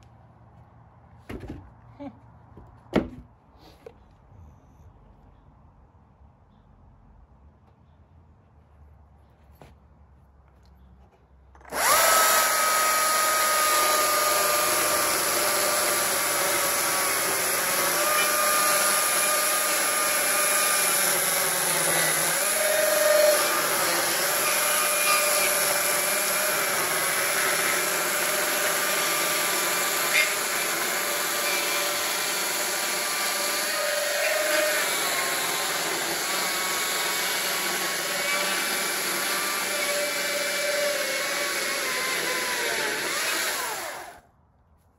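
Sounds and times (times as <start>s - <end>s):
electric chainsaw cutting log: 11.6s - 44.2s.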